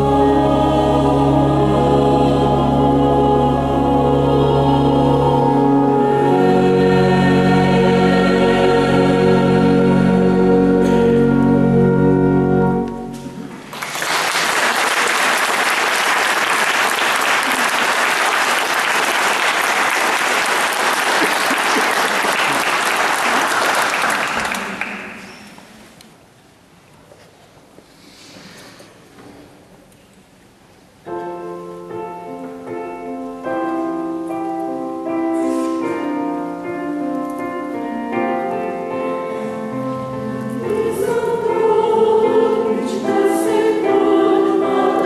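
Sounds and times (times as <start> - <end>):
choir singing sustained chords: 0.0 - 13.7, 31.5 - 45.0
audience applause: 13.7 - 25.2.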